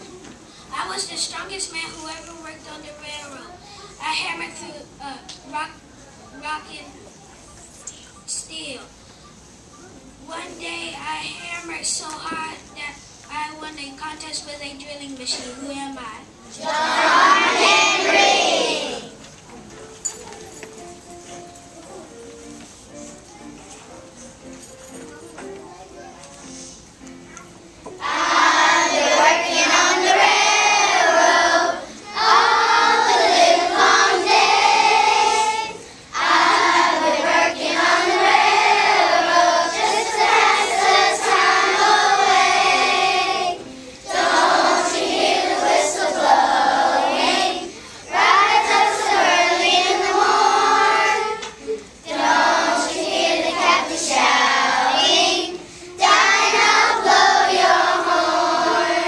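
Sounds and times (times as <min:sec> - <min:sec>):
children's choir singing: 0:16.5 - 0:19.2, 0:27.9 - 0:59.0.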